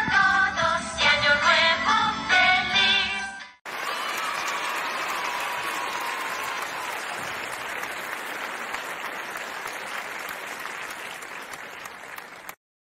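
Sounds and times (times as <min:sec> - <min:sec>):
crowd applause: 0:03.7 - 0:12.6.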